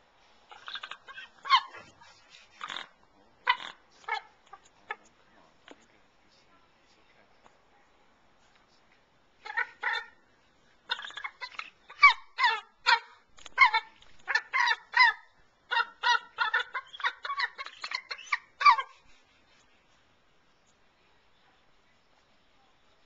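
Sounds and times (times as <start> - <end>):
eagle piping calls: 0.5 - 5.1, 9.4 - 10.2, 10.9 - 19.9.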